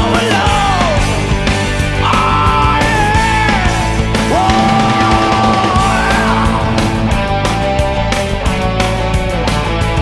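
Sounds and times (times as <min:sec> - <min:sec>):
rock music: 0:00.0 - 0:10.0
steady drum beat: 0:00.0 - 0:10.0.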